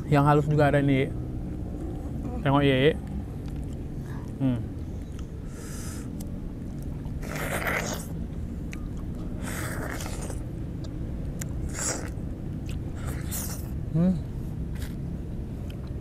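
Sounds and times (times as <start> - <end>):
wet biting and sucking of fruit: 5.1 - 8.8, 9.4 - 13.8, 14.7 - 15.0.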